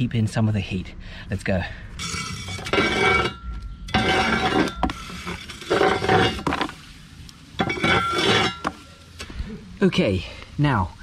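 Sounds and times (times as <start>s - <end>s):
charcoal clinking against metal: 2.0s - 6.8s, 7.6s - 8.9s
metal rake scraping embers on brick: 2.0s - 9.0s.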